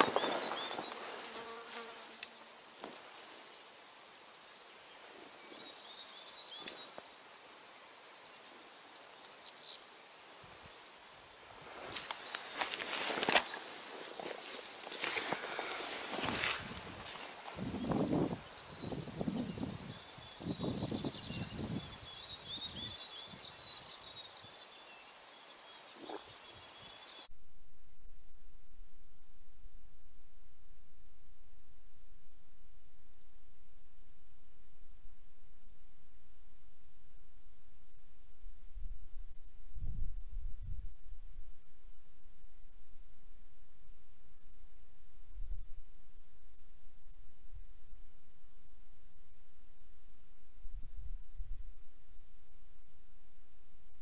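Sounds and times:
songbirds trilling: 0.0 - 1.3, 2.2 - 27.3
rustle of movement: 0.0 - 3.6, 11.4 - 18.5.

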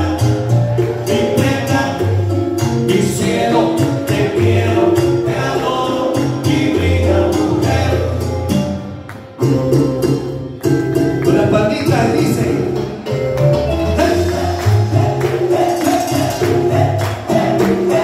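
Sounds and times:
man singing into microphone: 0.0 - 8.4, 13.9 - 18.0
latin dance music: 0.0 - 18.0.

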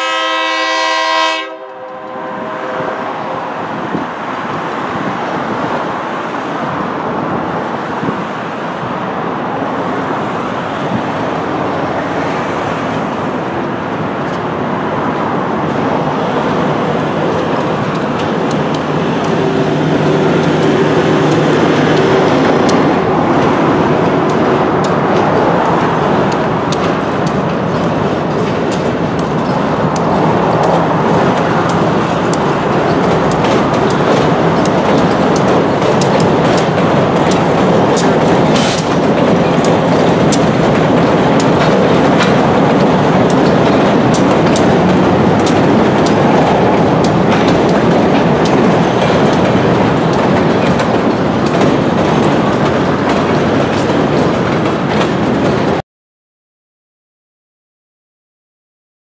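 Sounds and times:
train rumbling over bridge: 0.0 - 55.8
wheels clicking over rail joints: 9.6 - 55.8.

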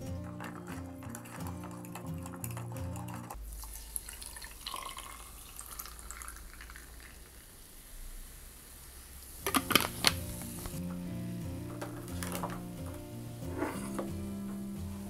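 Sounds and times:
soda water pouring and fizzing: 0.4 - 10.8.

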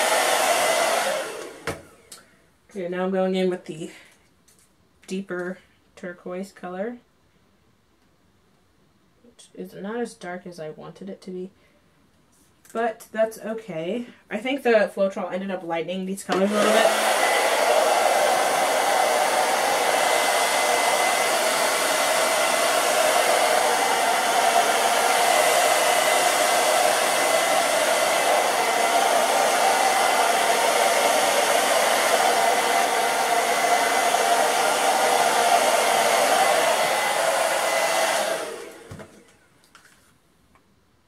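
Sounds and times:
hair dryer blowing air: 0.0 - 2.2, 16.3 - 39.4.

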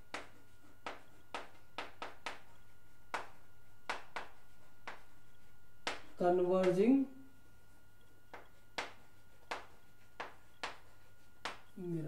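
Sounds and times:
chalk tapping on chalkboard: 0.0 - 6.9, 7.7 - 11.8.

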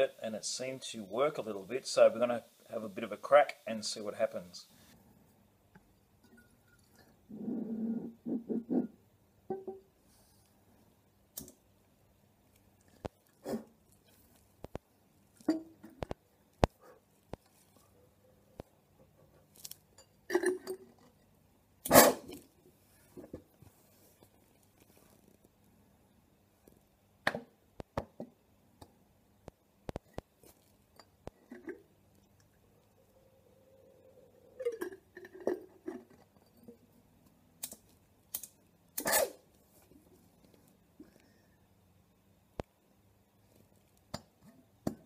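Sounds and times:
glass jar clinking on concrete: 6.2 - 7.0.

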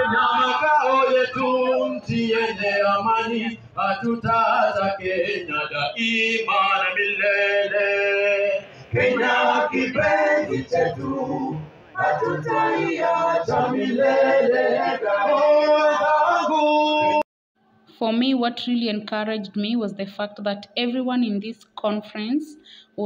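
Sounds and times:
men singing a song: 0.0 - 17.2.

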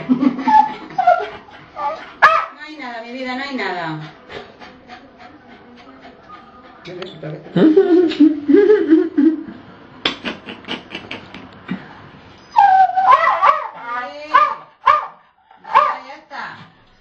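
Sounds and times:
dog whining and whimpering: 0.4 - 2.1, 12.5 - 14.2.

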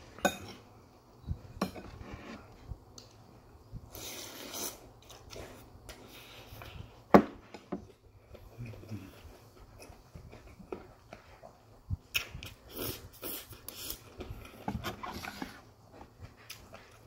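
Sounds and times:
person chewing: 12.1 - 14.6, 16.2 - 17.0.

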